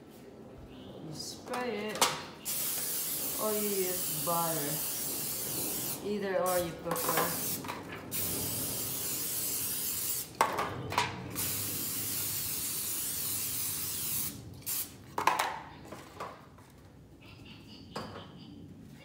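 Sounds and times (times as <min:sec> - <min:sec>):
aerosol cooking spray hissing: 0:02.4 - 0:10.4, 0:11.3 - 0:15.0.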